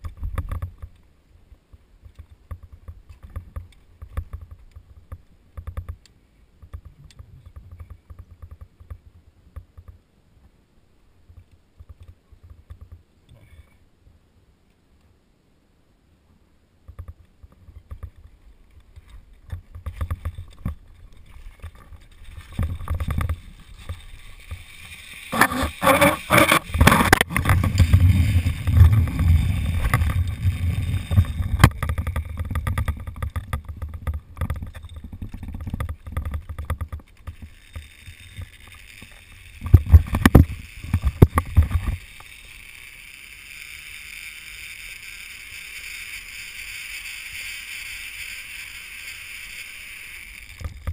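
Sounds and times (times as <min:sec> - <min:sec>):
gear and glove rubbing: 0:19.8 - 0:33.0
metal hardware scraping on cable: 0:19.8 - 0:50.9.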